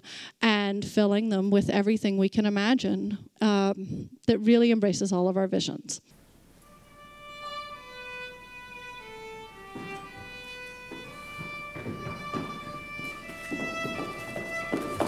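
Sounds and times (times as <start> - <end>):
violin playing slow melody: 6.2 - 15.0
soft knocks: 9.2 - 15.0.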